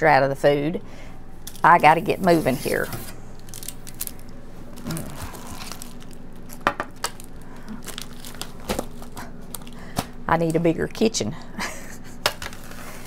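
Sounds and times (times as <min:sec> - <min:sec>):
bags rustling and crinkling: 0:02.2 - 0:09.9.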